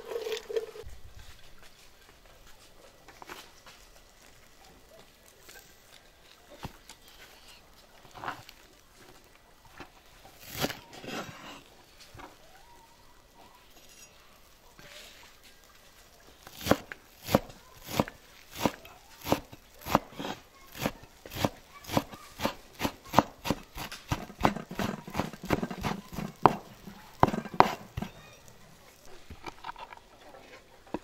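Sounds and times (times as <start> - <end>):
knife chopping on wooden board: 16.5 - 28.1.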